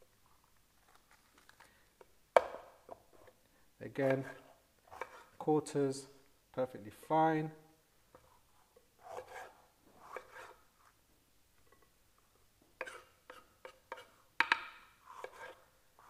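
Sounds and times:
knife cutting peppers: 0:09.0 - 0:10.6
knife tapping wooden board: 0:13.9 - 0:14.8.

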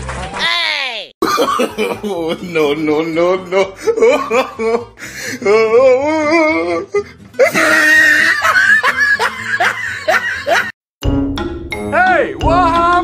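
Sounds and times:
background music: 0:01.2 - 0:13.0
people laughing: 0:07.4 - 0:10.8.

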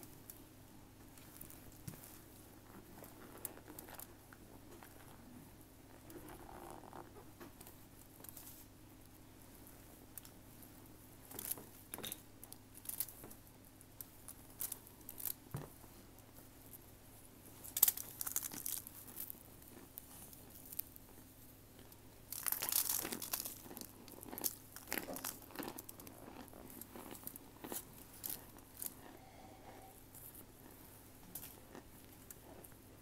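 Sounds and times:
crumbling and crunching food: 0:01.1 - 0:08.6, 0:17.5 - 0:33.0.

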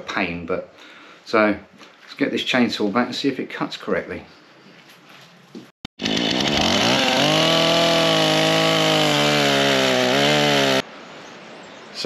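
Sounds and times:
chainsaw revving: 0:06.0 - 0:10.9.

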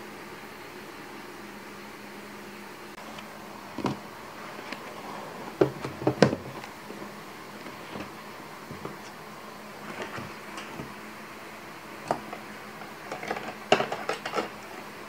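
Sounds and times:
faint room hum: 0:00.0 - 0:15.0
notebooks knocking on shelf: 0:05.6 - 0:06.6.

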